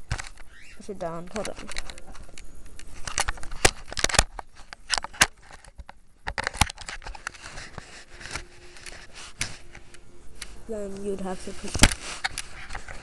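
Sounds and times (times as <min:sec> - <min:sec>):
hands rubbing: 0:07.0 - 0:13.0.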